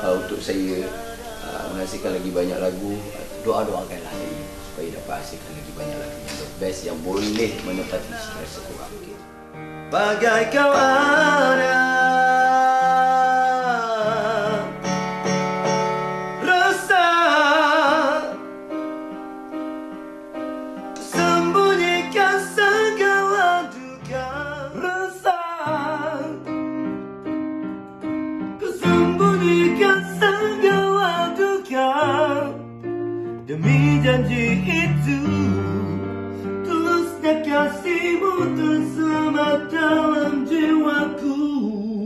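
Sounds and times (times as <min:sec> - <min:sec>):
man singing with vibrato: 0:00.0 - 0:03.5, 0:07.2 - 0:15.2, 0:16.3 - 0:18.6, 0:21.0 - 0:26.5, 0:28.6 - 0:32.6, 0:33.5 - 0:42.0
electronic keyboard chords: 0:00.0 - 0:25.0, 0:25.7 - 0:41.6.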